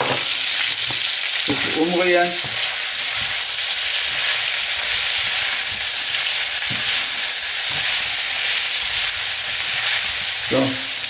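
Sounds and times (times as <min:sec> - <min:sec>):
food sizzling in a frying pan: 0:00.0 - 0:11.0
spoon stirring bumps: 0:00.8 - 0:10.8.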